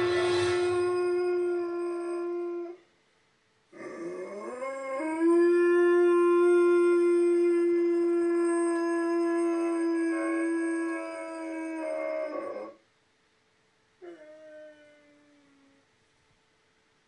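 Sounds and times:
dog howling: 0:00.0 - 0:02.8, 0:03.8 - 0:12.8.

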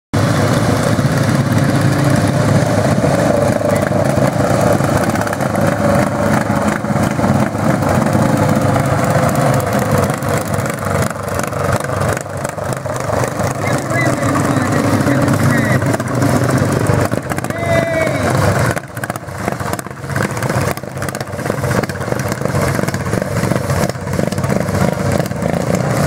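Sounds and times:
racing lawn tractor engines: 0:00.2 - 0:26.0.

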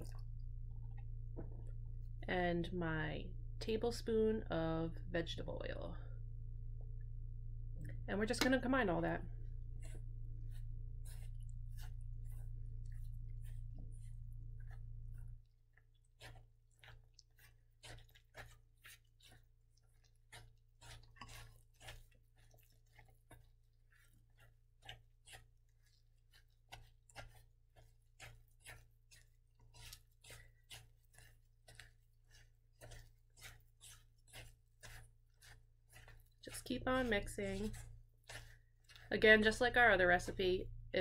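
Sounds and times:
spatula scraping metal bowl: 0:08.4 - 0:15.4, 0:16.0 - 0:41.0.

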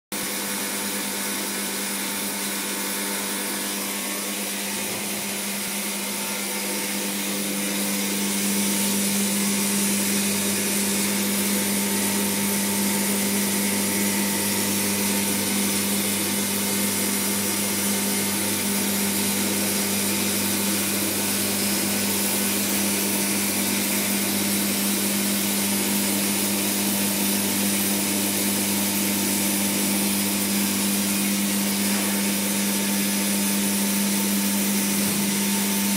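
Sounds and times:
machine motor hum: 0:00.2 - 0:35.9.

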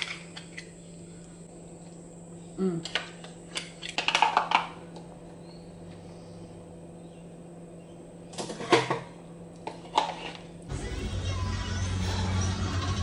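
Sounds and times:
low hum: 0:10.5 - 0:13.0.

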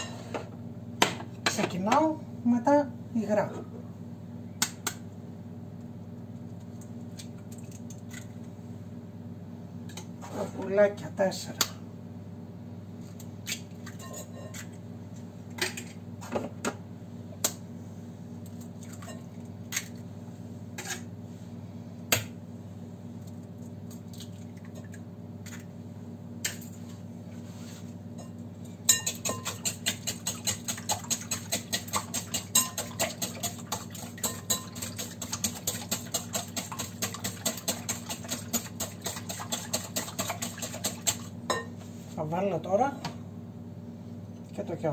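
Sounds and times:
whisk clinking on glass bowl: 0:28.9 - 0:38.9.

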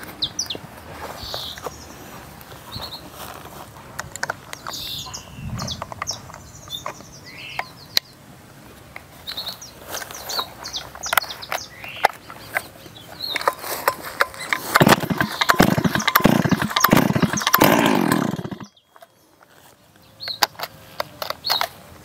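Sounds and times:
birds chirping and whistling: 0:01.2 - 0:02.0, 0:02.7 - 0:03.1, 0:04.6 - 0:08.2, 0:09.2 - 0:19.3
chainsaw control clicks: 0:11.0 - 0:19.1.

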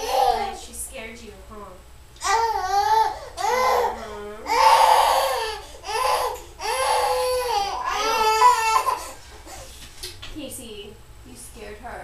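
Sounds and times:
baby crying: 0:00.0 - 0:00.6, 0:02.2 - 0:09.2.

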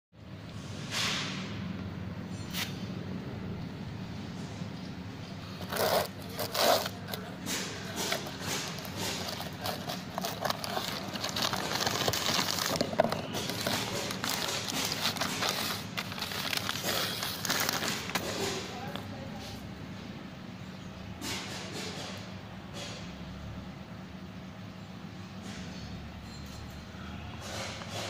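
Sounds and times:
plastic bag crinkling: 0:05.5 - 0:19.0
cardboard rustling: 0:05.6 - 0:18.9.

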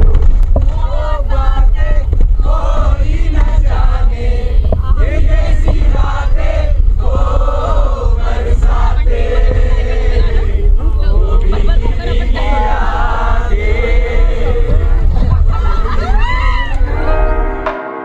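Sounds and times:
low rumble of bus: 0:00.0 - 0:17.6
passengers chanting and singing: 0:00.6 - 0:17.3.

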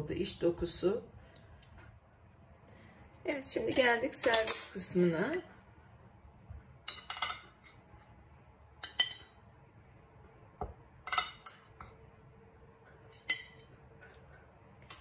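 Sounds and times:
cake server clinking on ceramic: 0:06.8 - 0:07.8, 0:08.8 - 0:09.4, 0:13.1 - 0:13.8.

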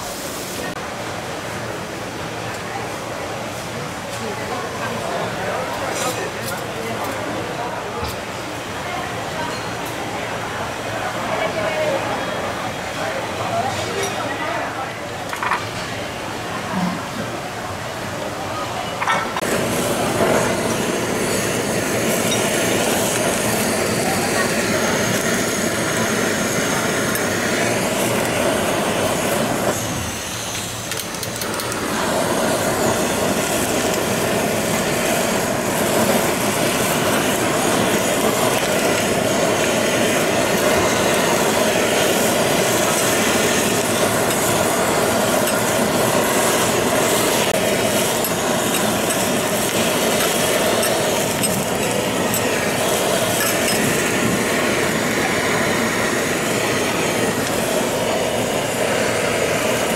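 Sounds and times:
fish sizzling on a griddle: 0:19.4 - 0:59.9.

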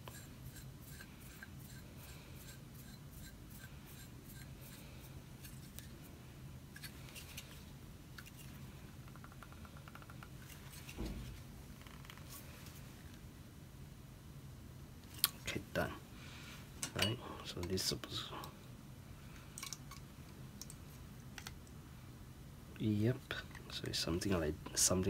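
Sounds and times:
soft thud: 0:11.0 - 0:11.4.

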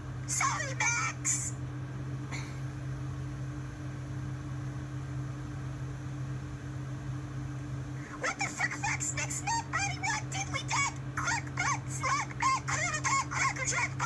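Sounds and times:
low electrical hum: 0:00.0 - 0:14.0
high squeaky voice-like sounds: 0:08.3 - 0:14.0.

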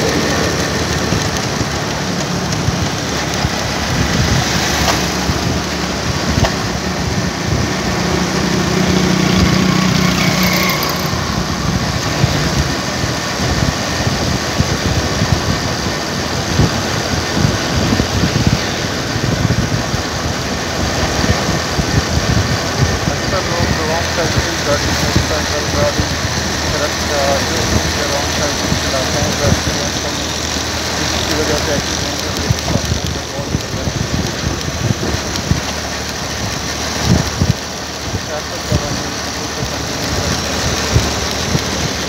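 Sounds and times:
road noise: 0:00.0 - 0:42.0
vehicle engine running: 0:00.0 - 0:42.0.

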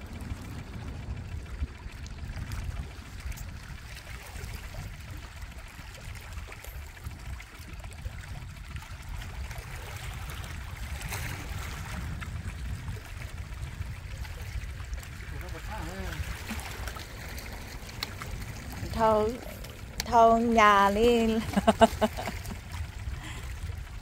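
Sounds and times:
small waves lapping on rocks: 0:00.0 - 0:24.0
wind rumble on microphone: 0:00.0 - 0:24.0.

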